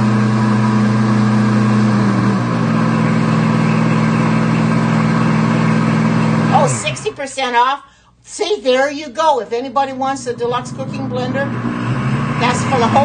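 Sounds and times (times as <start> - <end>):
blender motor humming: 0.0 - 7.2, 10.2 - 13.0.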